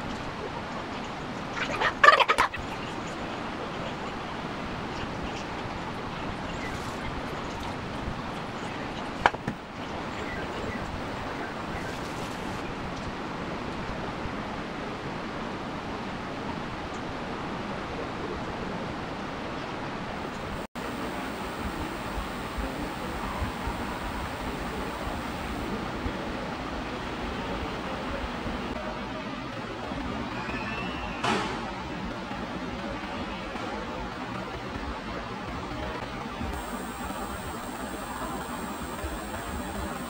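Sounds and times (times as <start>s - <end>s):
rapid fowl-like calls: 1.6s - 2.8s, 20.4s - 25.9s, 36.6s - 40.0s
steady background hiss: 20.0s - 29.0s, 36.4s - 40.0s.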